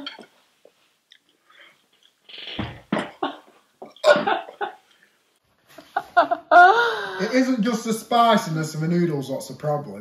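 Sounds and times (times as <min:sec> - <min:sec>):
man coughing: 0:04.0 - 0:04.6.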